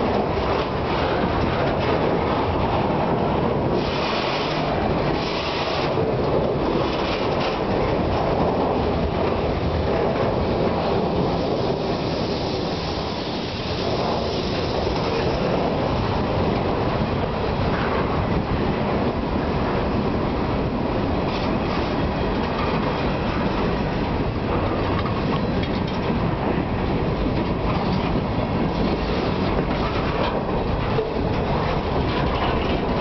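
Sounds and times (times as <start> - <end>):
freight train wheels rumbling: 0.0 - 33.0
sharp hiss: 11.2 - 15.5.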